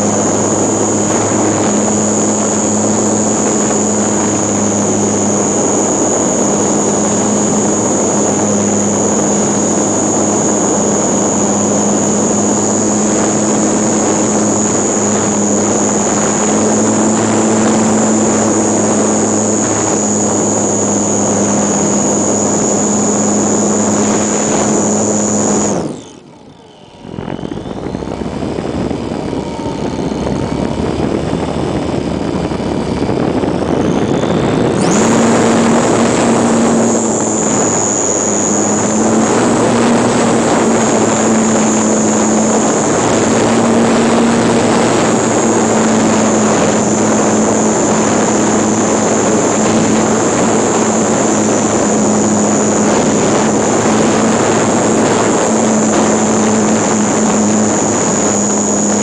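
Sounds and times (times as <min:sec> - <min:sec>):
electric motor whining: 0:00.0 - 0:59.0
propeller buzzing: 0:00.0 - 0:59.0
wind rush on microphone: 0:00.0 - 0:59.0.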